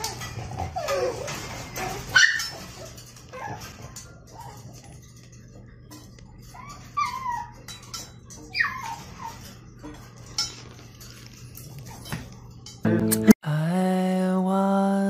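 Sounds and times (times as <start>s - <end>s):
puppy yipping: 0.8s - 4.6s, 6.5s - 9.6s.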